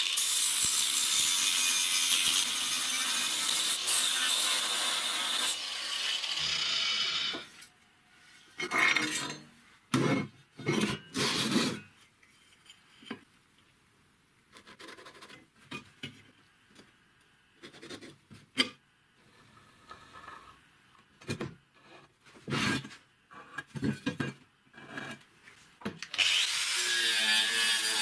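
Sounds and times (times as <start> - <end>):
angle grinder grinding steel: 0.0 - 7.6, 26.2 - 28.0
faint clicks and scrapes: 10.7 - 13.7, 19.2 - 21.1.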